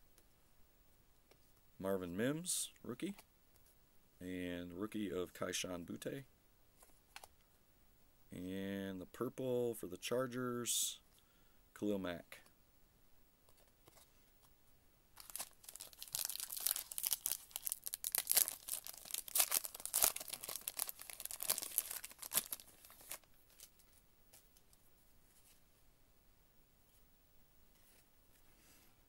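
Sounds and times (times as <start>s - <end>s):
foil wrapper tearing and crinkling: 15.2s - 23.7s.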